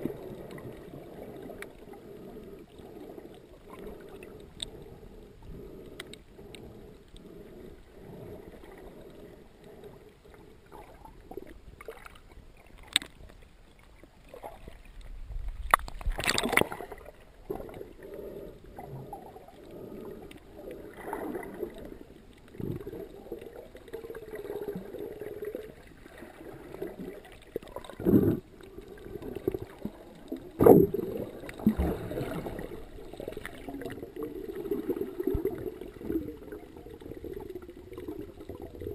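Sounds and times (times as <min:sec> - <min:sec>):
underwater rush of water: 0:00.0 - 0:38.9
underwater bursts and knocks: 0:15.3 - 0:17.8, 0:29.2 - 0:36.3.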